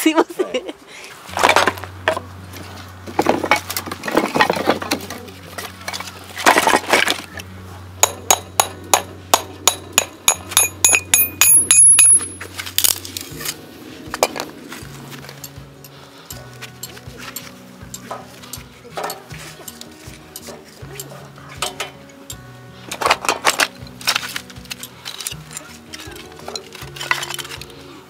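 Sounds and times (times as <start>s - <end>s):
scraping handling sounds: 1.2s - 7.5s, 12.0s - 28.0s
metal and glass clinks: 8.0s - 13.1s, 15.2s - 27.8s
sharp ringing clinks: 9.6s - 12.6s.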